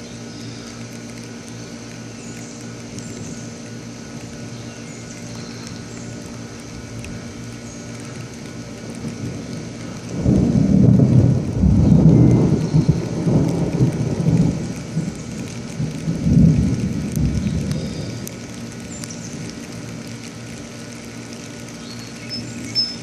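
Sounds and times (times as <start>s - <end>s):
rolling thunder: 9.0s - 18.3s.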